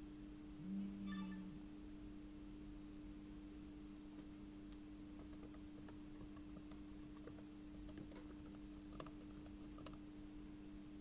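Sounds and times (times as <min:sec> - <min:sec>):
steady low hum: 0:00.0 - 0:11.0
keyboard typing: 0:05.2 - 0:10.0.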